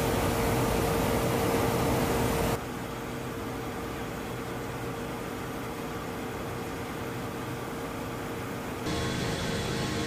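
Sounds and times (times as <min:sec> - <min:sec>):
aircraft cabin drone: 0:08.8 - 0:10.0.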